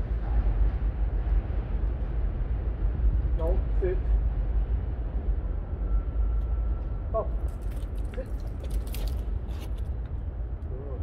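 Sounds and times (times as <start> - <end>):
city street rumble: 0.0 - 11.0
light clicks and scrapes: 7.5 - 10.2.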